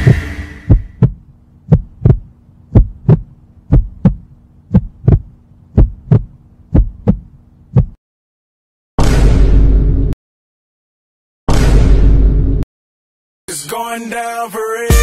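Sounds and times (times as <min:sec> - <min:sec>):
low steady hum: 0:00.0 - 0:07.9
heartbeat thumps: 0:00.0 - 0:08.0.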